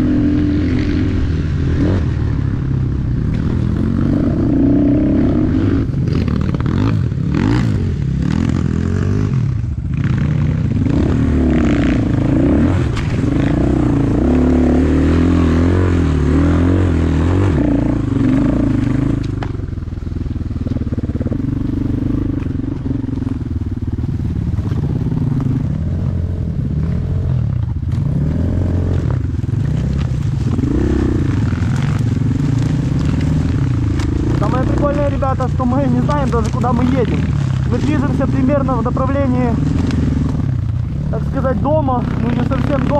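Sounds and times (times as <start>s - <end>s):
motorcycle engine revving: 0.0s - 42.9s.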